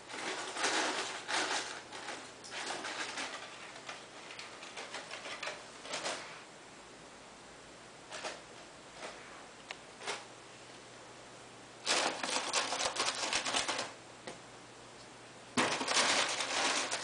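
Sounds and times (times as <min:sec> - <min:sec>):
rapid cardboard crackling: 0:00.0 - 0:06.2, 0:11.8 - 0:14.0, 0:15.6 - 0:17.0.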